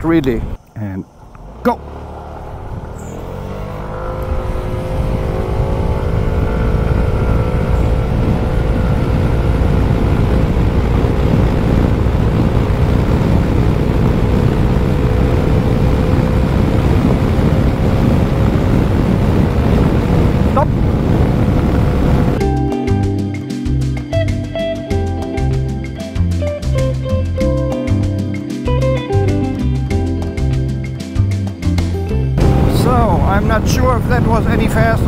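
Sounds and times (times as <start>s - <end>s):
scooter engine at full throttle: 1.4s - 22.6s, 31.8s - 34.5s
wind rush over microphone: 2.4s - 22.4s, 32.4s - 35.0s.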